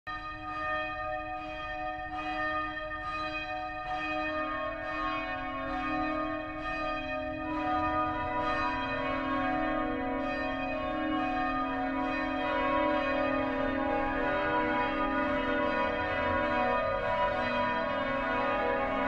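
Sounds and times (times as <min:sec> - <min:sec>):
church bells ringing: 0:00.1 - 0:19.0.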